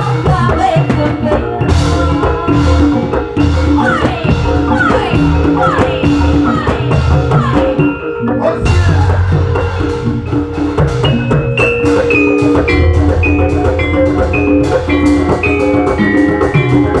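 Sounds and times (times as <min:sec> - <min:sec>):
drum strokes: 0:00.0 - 0:17.0
metal keyed instruments melody: 0:07.8 - 0:17.0.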